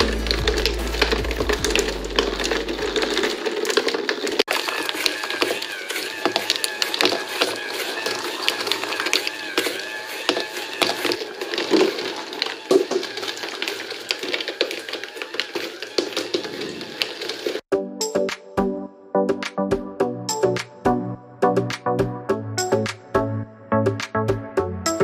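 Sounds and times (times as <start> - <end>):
glass marbles clicking and rattling: 0.1 - 5.6.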